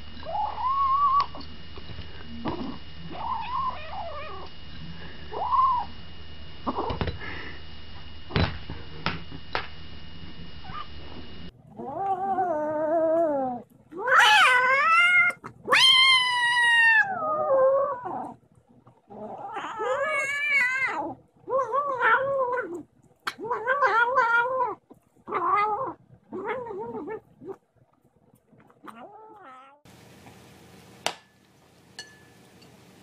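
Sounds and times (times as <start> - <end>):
kitten yowling: 0.2 - 1.4, 3.0 - 4.5, 5.3 - 5.9, 11.8 - 18.3, 19.3 - 27.2.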